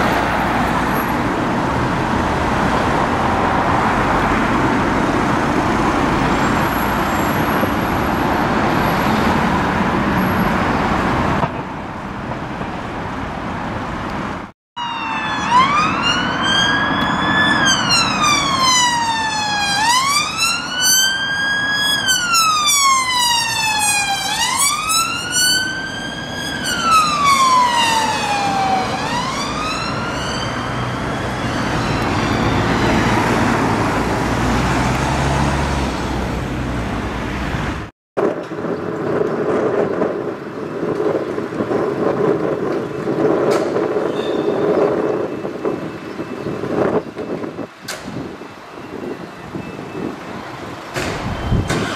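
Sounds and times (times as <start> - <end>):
road and engine noise: 0.0 - 51.9
police siren wailing: 14.8 - 34.3.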